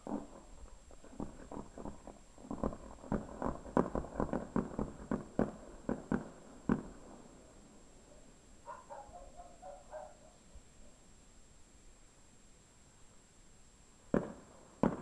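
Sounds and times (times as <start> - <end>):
fireworks bursting: 0.0 - 8.0, 14.0 - 15.0.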